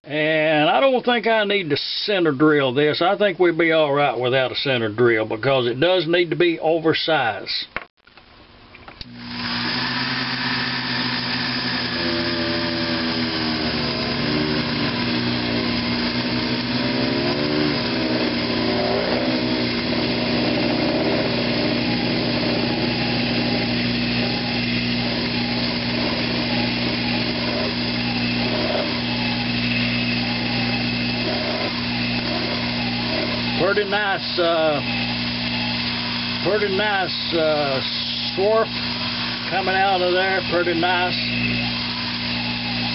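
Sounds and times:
drill bit cutting aluminum: 9.0 - 42.9
lathe motor humming: 9.0 - 42.9.

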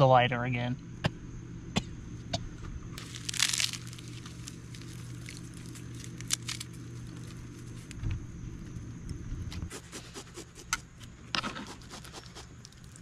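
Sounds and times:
fire crackling: 3.0 - 10.0
tinder rasping and crinkling: 3.0 - 13.0.

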